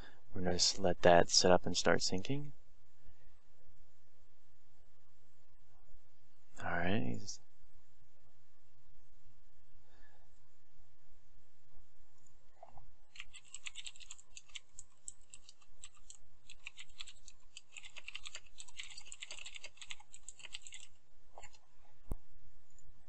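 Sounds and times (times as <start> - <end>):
low steady hum: 0.0 - 23.0
computer keyboard typing: 13.1 - 21.6.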